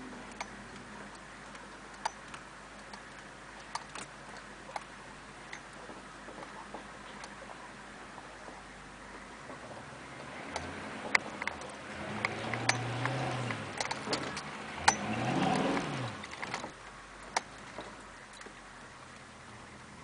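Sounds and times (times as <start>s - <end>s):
truck engine revving: 9.6s - 16.8s
truck knocks and rattles: 10.5s - 18.6s.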